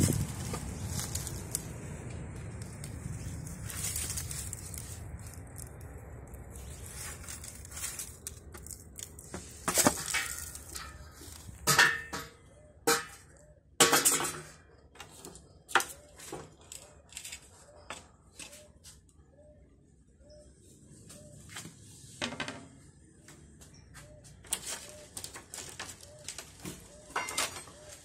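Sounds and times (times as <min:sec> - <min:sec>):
hard objects clinking: 0:07.2 - 0:14.6, 0:24.6 - 0:28.0.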